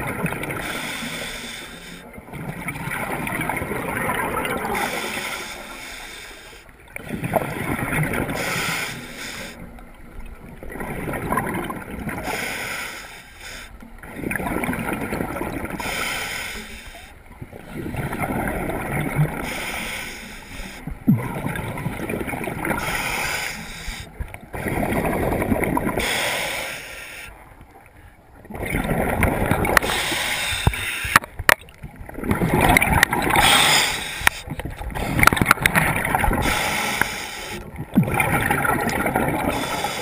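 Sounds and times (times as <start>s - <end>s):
exhaled bubbles rushing underwater: 0.0s - 1.2s, 2.1s - 5.9s, 6.8s - 9.0s, 9.6s - 12.6s, 13.9s - 16.0s, 17.2s - 20.0s, 20.6s - 26.2s, 28.4s - 40.0s.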